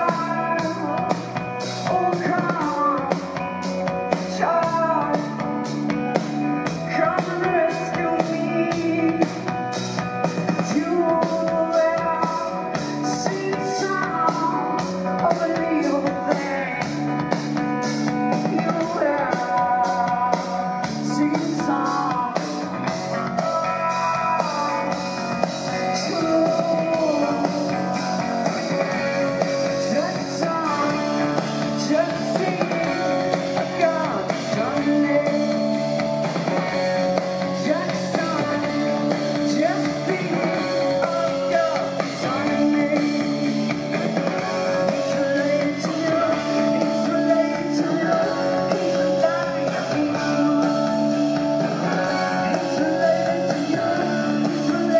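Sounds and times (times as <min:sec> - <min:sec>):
rock band playing live: 0:00.0 - 0:54.9
woman singing: 0:06.8 - 0:09.7, 0:10.5 - 0:16.9, 0:18.4 - 0:25.1.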